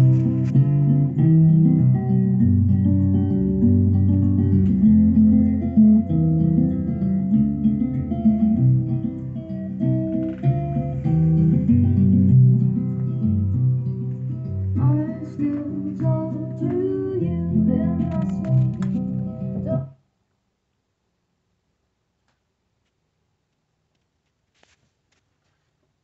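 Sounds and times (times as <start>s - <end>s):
acoustic guitar music from record: 0.0s - 20.0s.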